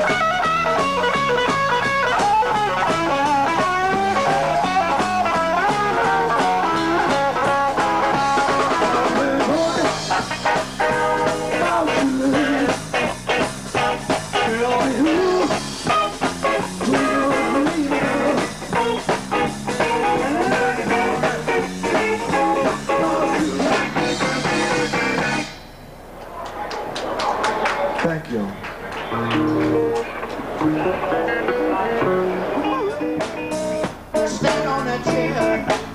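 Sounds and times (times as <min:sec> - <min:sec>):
bass guitar: 0:00.0 - 0:25.6, 0:29.0 - 0:35.9
electric guitar: 0:00.0 - 0:25.6, 0:28.9 - 0:35.9
percussion beat: 0:28.7 - 0:35.9.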